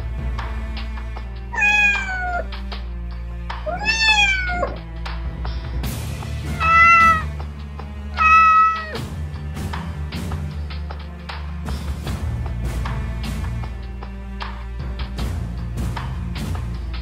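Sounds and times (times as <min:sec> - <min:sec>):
background music: 0:00.0 - 0:17.0
kittens meowing: 0:01.6 - 0:02.5, 0:03.7 - 0:04.8, 0:06.4 - 0:07.3, 0:08.2 - 0:09.0.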